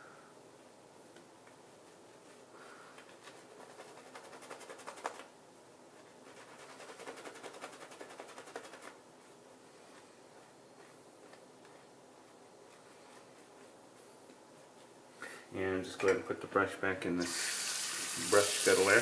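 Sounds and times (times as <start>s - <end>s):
shaving brush squishing lather: 3.2s - 5.3s, 6.0s - 14.8s.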